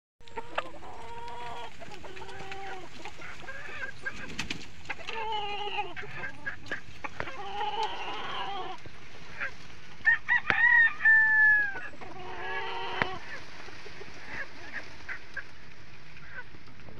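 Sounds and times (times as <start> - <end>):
chickens clucking: 0.2 - 16.9.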